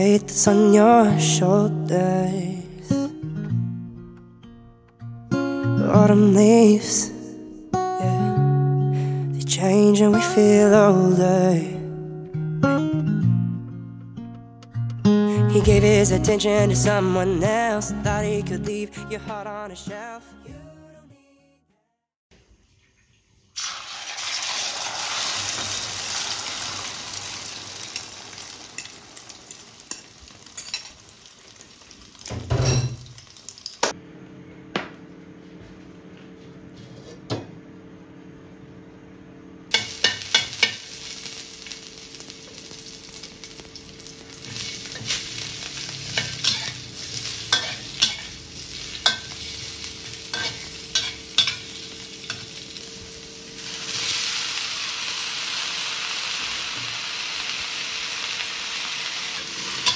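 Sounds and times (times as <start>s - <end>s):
food sizzling in hot oil: 23.6s - 33.9s, 39.7s - 59.9s
metal spatula scraping wok: 44.5s - 52.5s.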